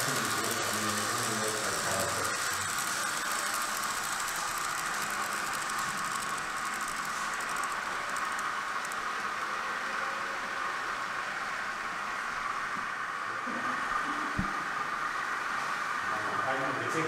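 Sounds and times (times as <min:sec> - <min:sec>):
model train rattling on track: 0:00.0 - 0:09.4.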